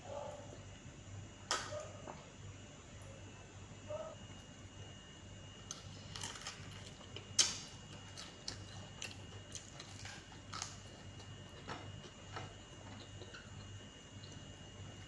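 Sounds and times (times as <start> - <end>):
faint steady hum: 0.0 - 15.0
person chewing wetly: 5.7 - 15.0.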